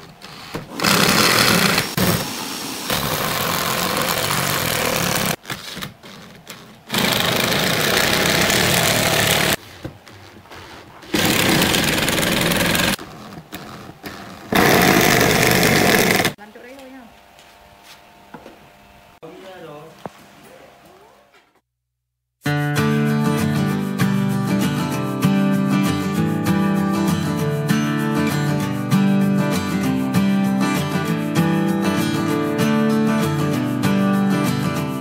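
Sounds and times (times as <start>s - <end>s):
electric drill driving screws: 0.3s - 5.4s, 6.9s - 9.6s, 11.1s - 13.0s, 14.5s - 16.4s.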